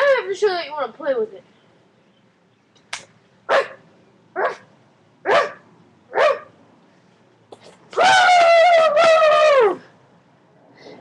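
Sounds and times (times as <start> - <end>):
dog-like barks: 3.5 - 3.8, 4.4 - 6.5.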